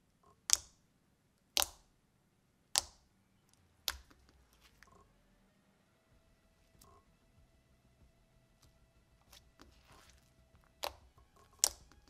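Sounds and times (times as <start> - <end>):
slime popping clicks: 0.5 - 0.8, 1.5 - 1.9, 2.7 - 3.1, 3.8 - 4.4, 9.3 - 12.0.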